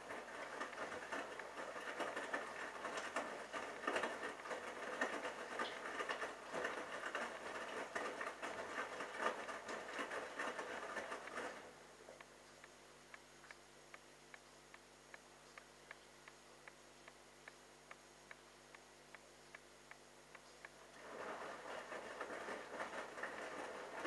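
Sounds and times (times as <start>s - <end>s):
washing machine drum tumbling laundry: 0.0s - 11.7s, 20.8s - 24.0s.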